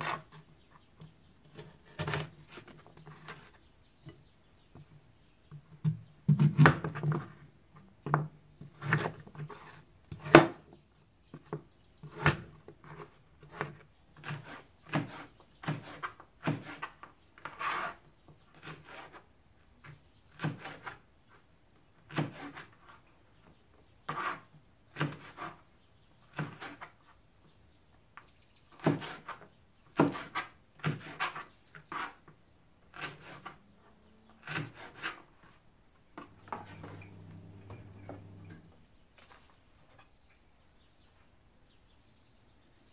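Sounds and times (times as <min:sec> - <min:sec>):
knife chopping on plastic board: 0:28.8 - 0:32.1, 0:34.4 - 0:35.2.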